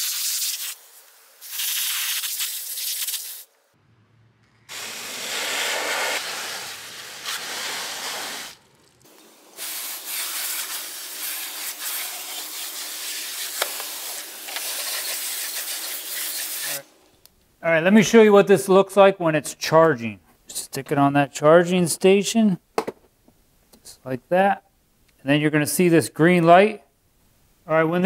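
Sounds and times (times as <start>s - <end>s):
hose nozzle spraying water: 0.0s - 3.5s, 4.7s - 16.8s.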